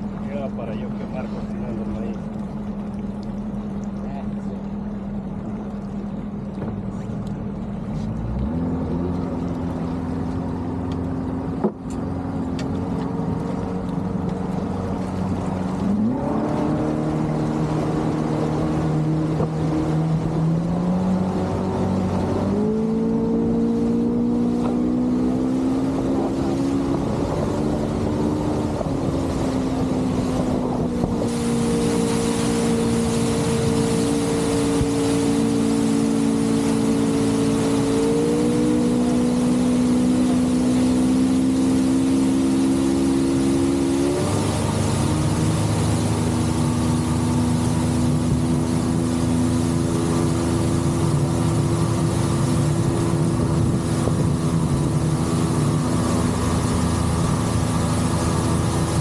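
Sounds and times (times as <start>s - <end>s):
motorboat engine drone: 0.0s - 59.0s
hull hissing through water: 15.2s - 59.0s.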